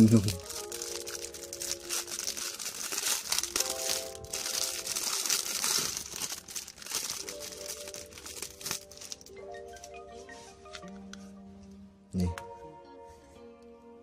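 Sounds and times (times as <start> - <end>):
plastic bag crinkling: 0.0 - 9.8
soft background music: 0.0 - 14.0.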